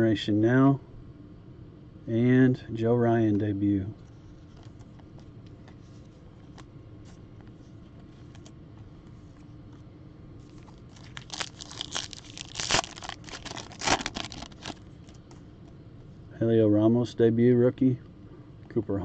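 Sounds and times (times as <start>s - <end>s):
foil wrapper crinkling and tearing: 10.4s - 15.3s.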